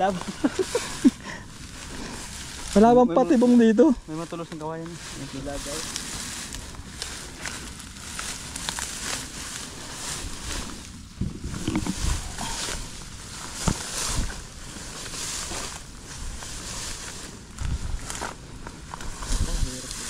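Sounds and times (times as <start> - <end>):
footsteps through tall grass: 0.0 - 20.0
dull low thumps: 11.0 - 14.5.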